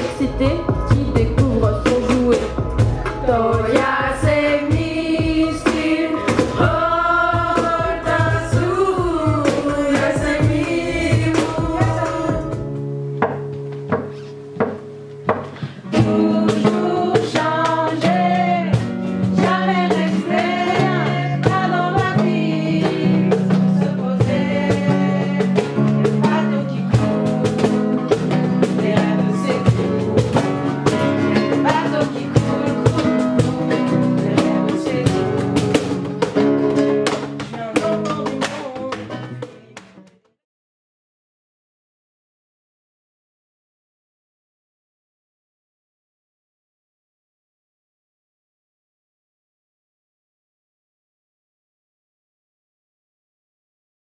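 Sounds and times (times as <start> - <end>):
women singing: 0.0 - 2.6, 3.2 - 12.7, 15.9 - 35.9
bass line: 0.0 - 13.3
acoustic guitar: 0.0 - 40.4
percussion: 0.0 - 40.4.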